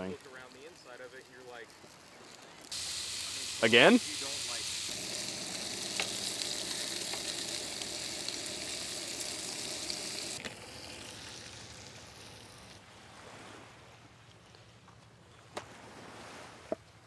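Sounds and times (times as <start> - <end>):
bacon sizzling and popping: 0.0 - 12.8.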